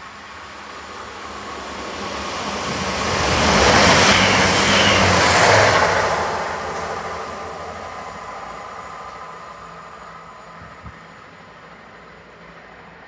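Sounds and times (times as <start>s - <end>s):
high whine: 0.0s - 13.0s
train passing at speed: 0.0s - 13.0s
low engine drone: 6.0s - 13.0s.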